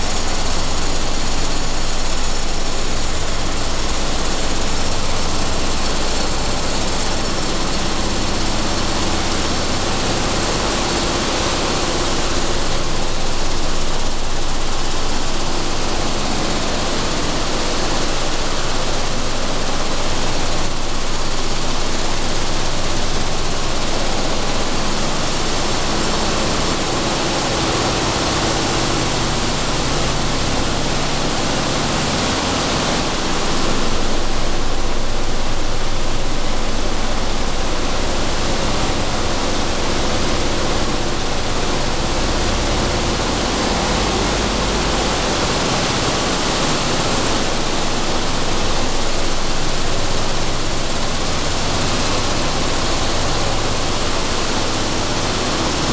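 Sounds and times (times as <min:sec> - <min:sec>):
machinery rushing noise: 0:52.3 - 0:55.9.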